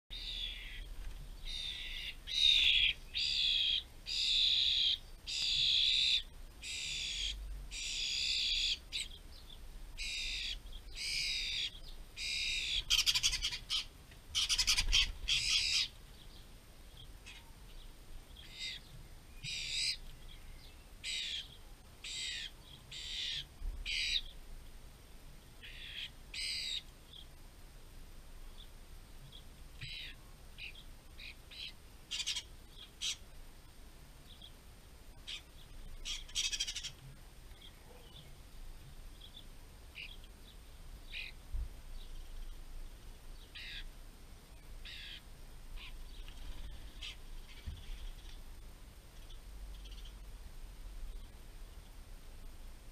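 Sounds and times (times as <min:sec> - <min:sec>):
fledgling bird begging calls: 0:00.1 - 0:00.9, 0:01.5 - 0:09.2, 0:10.0 - 0:15.9, 0:18.4 - 0:18.9, 0:19.5 - 0:20.0, 0:21.0 - 0:24.3, 0:25.6 - 0:26.9, 0:29.8 - 0:33.2, 0:35.3 - 0:37.0, 0:43.6 - 0:43.9, 0:44.8 - 0:45.2.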